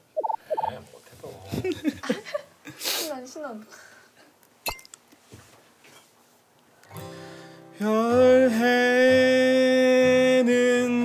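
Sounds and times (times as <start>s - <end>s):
acoustic guitar picking: 6.9s - 11.0s.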